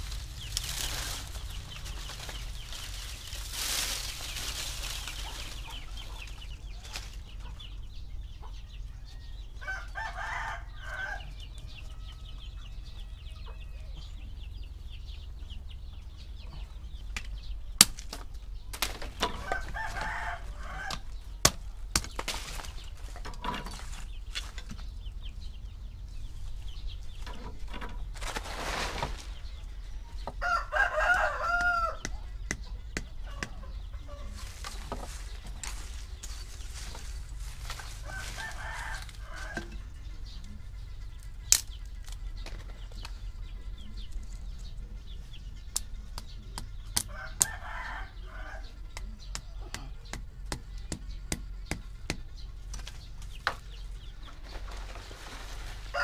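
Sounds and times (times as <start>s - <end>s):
rooster crowing: 9.0s - 14.1s, 19.3s - 21.1s, 30.4s - 32.2s, 37.8s - 39.8s, 47.0s - 48.9s
hatchet knocking against wood: 32.0s - 33.6s.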